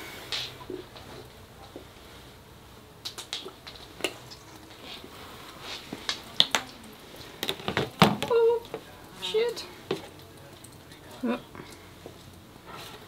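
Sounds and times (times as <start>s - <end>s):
plastic bottles knocking on table: 7.4s - 8.3s.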